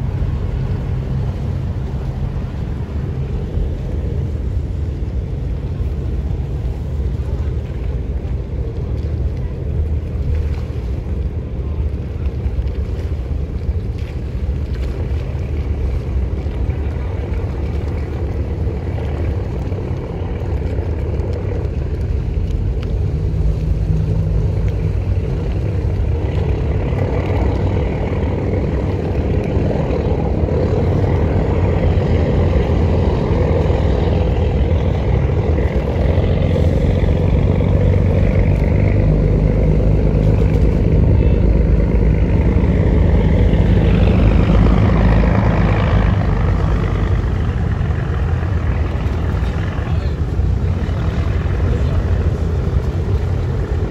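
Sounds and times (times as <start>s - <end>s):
ferry engine drone: 0.0s - 53.9s.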